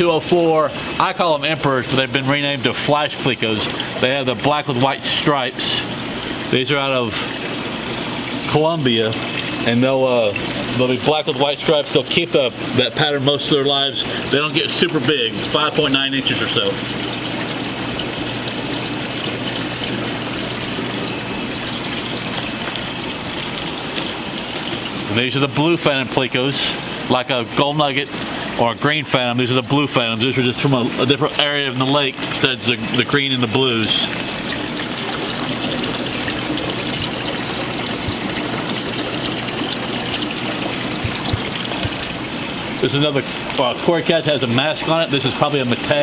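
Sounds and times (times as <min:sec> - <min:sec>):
aquarium water bubbling: 0:00.0 - 0:46.0
low steady hum: 0:00.0 - 0:46.0.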